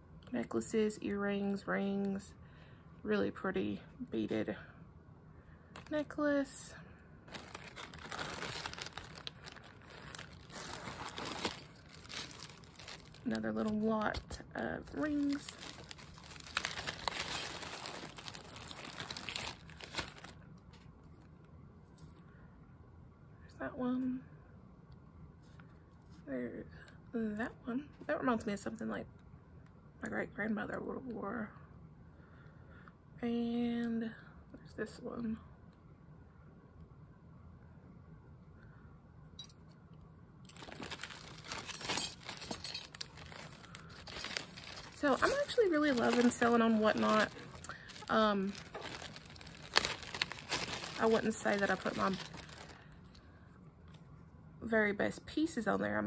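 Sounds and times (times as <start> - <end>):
plastic bags crinkling: 5.8 - 6.0, 7.3 - 20.4, 40.5 - 53.2.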